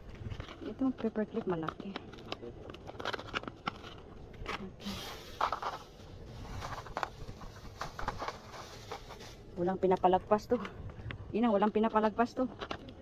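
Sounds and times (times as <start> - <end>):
plastic bags rustling: 0.0 - 9.9.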